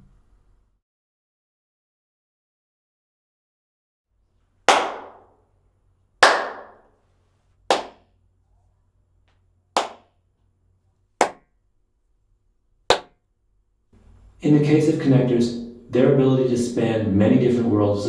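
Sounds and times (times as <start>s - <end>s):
hand claps in small room: 4.6s - 5.4s, 6.2s - 6.9s, 7.7s - 8.2s, 9.3s - 10.2s, 11.2s - 11.5s, 12.9s - 13.2s.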